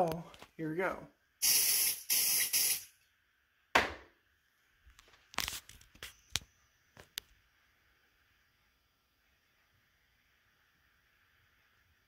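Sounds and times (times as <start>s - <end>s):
aerosol spray hissing: 1.4s - 2.9s.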